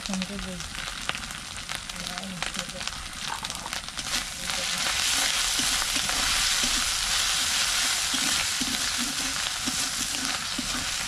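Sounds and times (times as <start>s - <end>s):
food sizzling in hot oil: 0.0s - 11.0s
metal spatula scraping pan: 5.0s - 11.0s.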